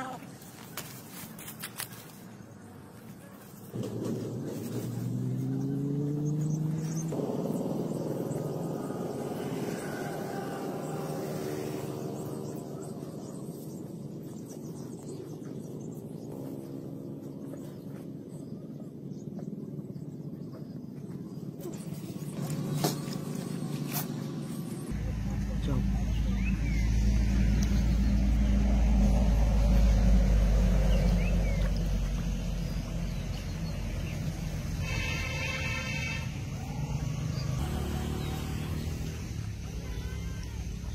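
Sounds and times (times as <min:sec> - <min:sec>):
low drone with held tones: 0:03.7 - 0:20.4
low rumble with hum: 0:03.7 - 0:35.4.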